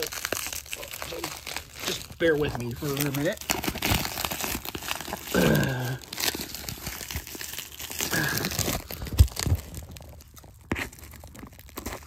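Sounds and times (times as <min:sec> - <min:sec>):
plastic wrap crinkling and tearing: 0:00.0 - 0:12.0
man humming: 0:05.3 - 0:06.0.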